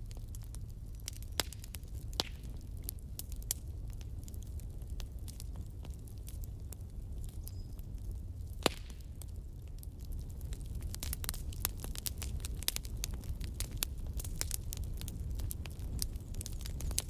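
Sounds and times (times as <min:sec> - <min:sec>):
wood fire crackling: 0:00.0 - 0:17.0
sharp pop of fire: 0:08.6 - 0:09.0.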